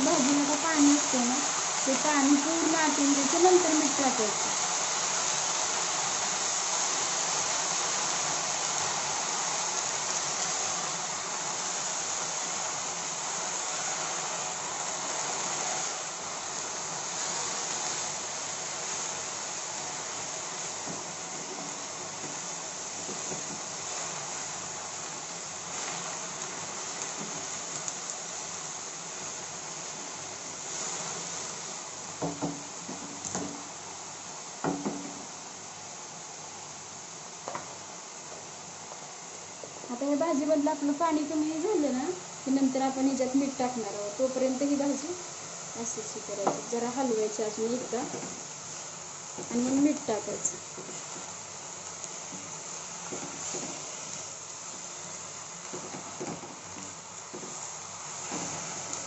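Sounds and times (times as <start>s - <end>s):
greens sizzling in hot oil: 0.0s - 59.0s
wooden spatula stirring: 20.1s - 28.1s, 46.4s - 59.0s.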